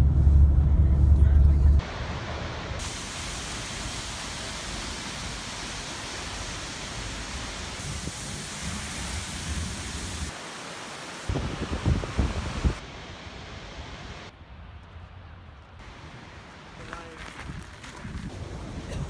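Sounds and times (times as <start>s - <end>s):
waterfall rushing: 1.8s - 14.3s, 15.8s - 16.8s
wind buffeting microphone: 11.3s - 12.8s, 15.9s - 19.0s.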